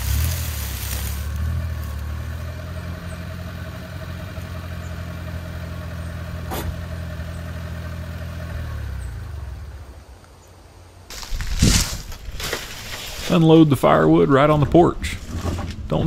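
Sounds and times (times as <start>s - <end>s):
truck engine running: 0.0s - 10.3s.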